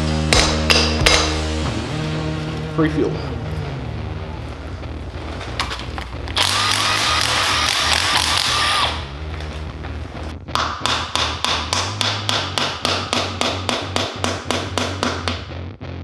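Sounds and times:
cordless ratchet running: 6.4 - 9.0.

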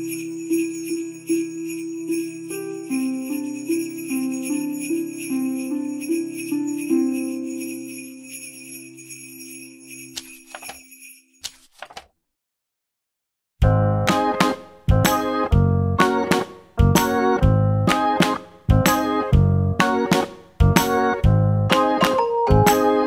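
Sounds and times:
sleigh bells shaken: 0.0 - 11.4.

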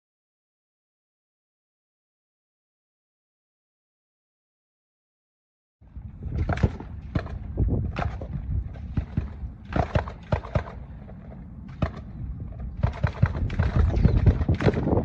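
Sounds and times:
low rumble: 5.8 - 15.0
sharp cracks and knocks: 6.3 - 10.8, 11.7 - 15.0.

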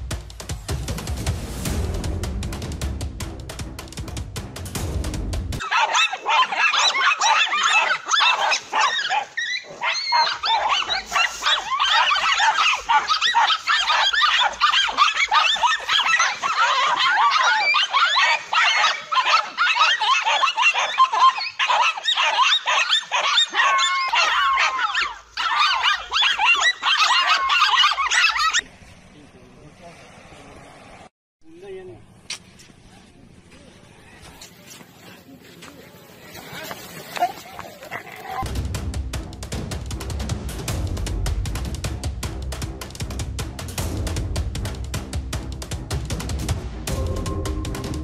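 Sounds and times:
dogs barking and yelping: 5.6 - 28.7, 34.0 - 38.5.

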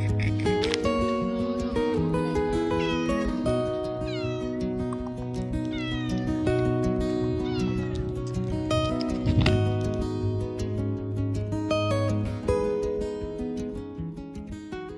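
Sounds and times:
background music: 0.0 - 14.9
cat meowing: 2.7 - 8.1.

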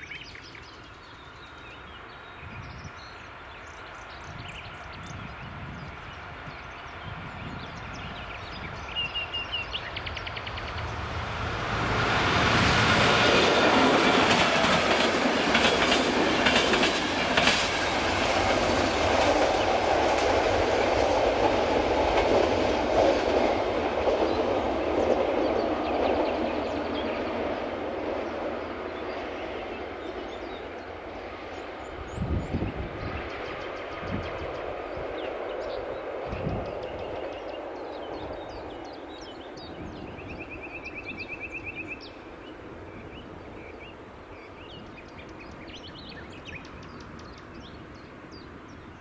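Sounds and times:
train wheels clattering over rail joints: 12.4 - 26.3.

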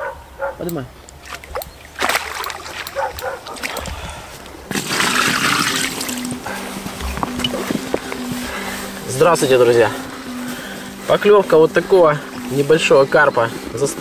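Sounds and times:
water splashing at lake edge: 1.1 - 4.0, 4.7 - 9.0
water poured from bucket: 4.7 - 6.2.

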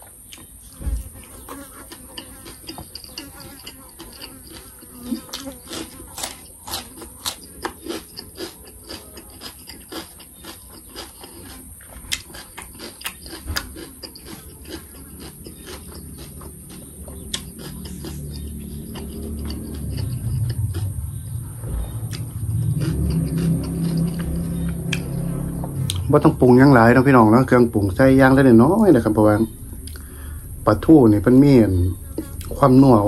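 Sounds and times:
crunching and chewing cucumber: 0.0 - 33.0
low rumble: 16.2 - 33.0
steady high-pitched hiss: 26.0 - 33.0.

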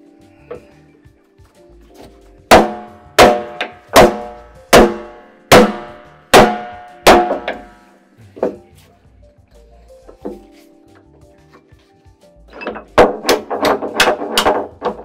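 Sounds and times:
hammer striking steel wedge: 2.5 - 8.6, 12.6 - 15.0.

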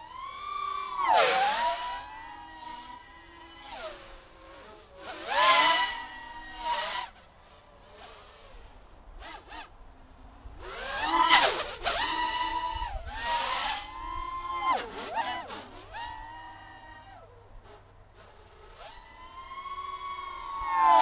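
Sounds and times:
quadcopter motors whining: 0.0 - 21.0.

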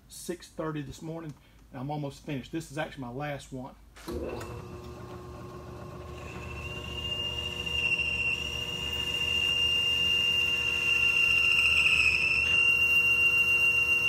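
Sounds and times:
metal lathe whining: 4.1 - 14.0.

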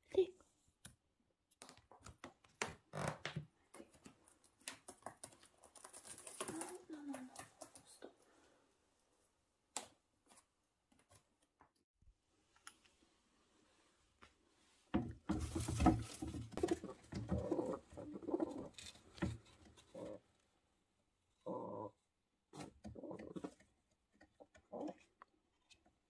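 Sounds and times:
pigeons cooing: 16.6 - 18.8.

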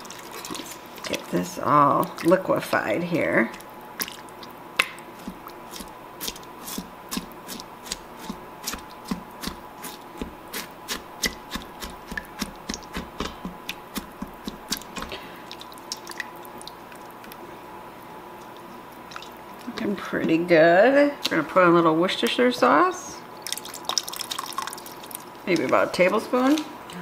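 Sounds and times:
spatula knocking and scraping pot: 4.8 - 15.2.

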